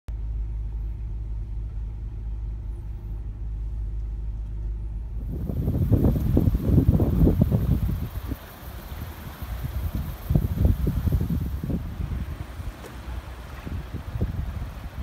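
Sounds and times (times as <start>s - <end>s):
car rumble inside cabin: 0.1s - 15.0s
gusty wind buffeting microphone: 5.0s - 15.0s.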